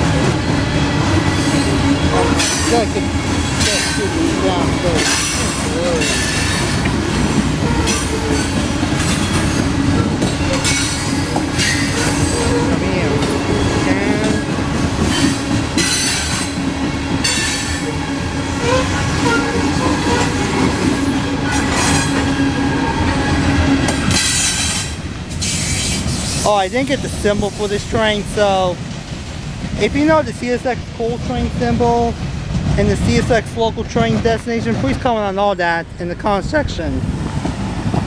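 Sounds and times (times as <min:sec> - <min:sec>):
steel wheels rumbling on rail: 0:00.0 - 0:38.0
squealing wheel flanges: 0:07.6 - 0:14.2, 0:17.2 - 0:23.1.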